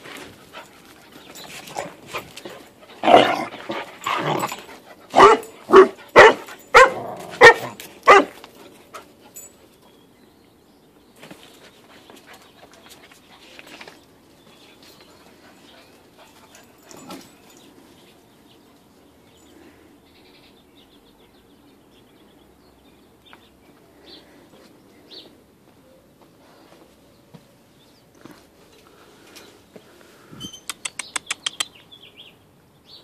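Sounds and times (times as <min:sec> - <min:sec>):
dogs playing roughly: 0:00.0 - 0:09.8, 0:11.2 - 0:19.1
dog barking: 0:05.1 - 0:08.4.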